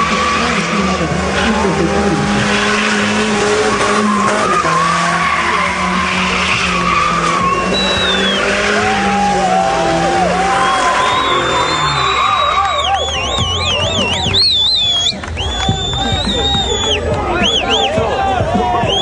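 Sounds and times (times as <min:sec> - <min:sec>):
car engine running: 0:00.0 - 0:19.0
tyres squealing: 0:01.4 - 0:18.0.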